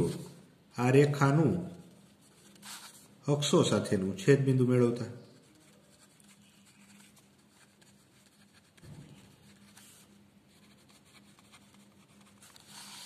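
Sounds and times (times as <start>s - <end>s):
pen scratching on paper: 5.4s - 13.0s.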